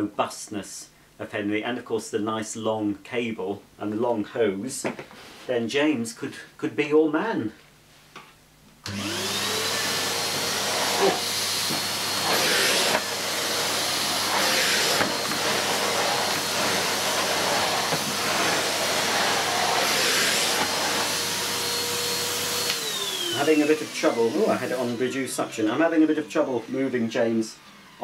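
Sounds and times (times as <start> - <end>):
vacuum cleaner motor whine: 8.8 - 28.0
vacuum floor head swishing on rug: 8.9 - 23.4.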